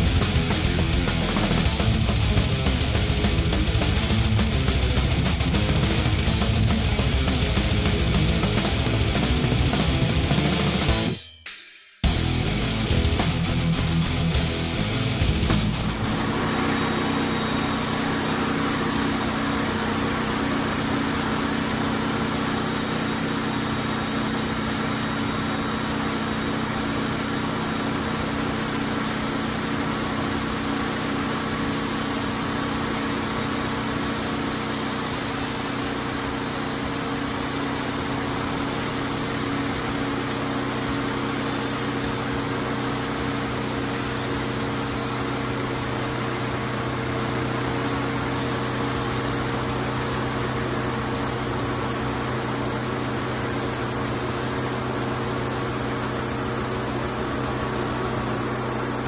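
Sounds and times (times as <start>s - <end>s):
sawmill engine running: 0.0s - 11.2s, 12.1s - 59.0s.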